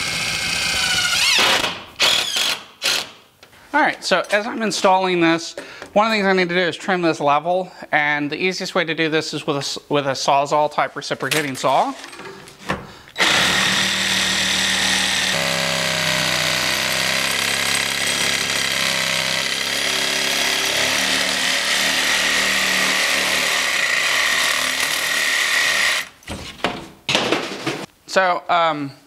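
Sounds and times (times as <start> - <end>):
reciprocating saw cutting board: 13.2 - 26.1.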